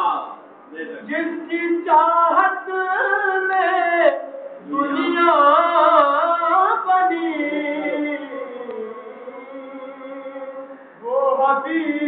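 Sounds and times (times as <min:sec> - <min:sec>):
person singing unaccompanied: 0:00.0 - 0:12.0
breath: 0:10.6 - 0:11.0.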